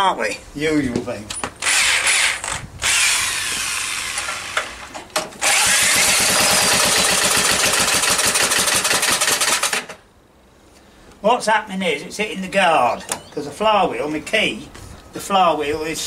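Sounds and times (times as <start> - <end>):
small engine running: 1.6 - 4.8, 5.4 - 9.9
electric drill spinning: 1.6 - 9.9.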